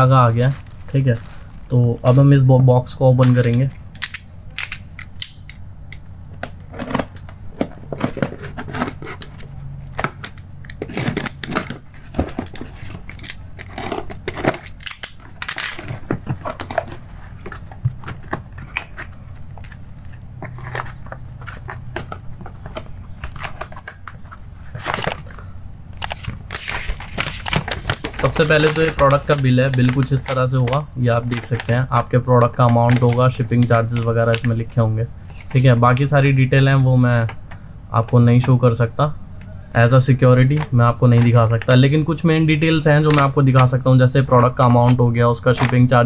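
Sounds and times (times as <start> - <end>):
paper rustling: 0.0 - 2.5, 10.9 - 34.6
tape and cardboard crackling: 0.0 - 34.7
knife slitting packing tape: 8.0 - 22.2.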